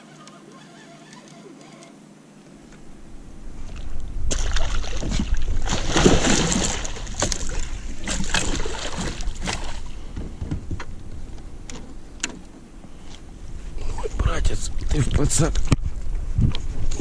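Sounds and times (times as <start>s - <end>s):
steady low rumble: 2.6s - 17.0s
fish splashing at the surface: 3.7s - 9.9s.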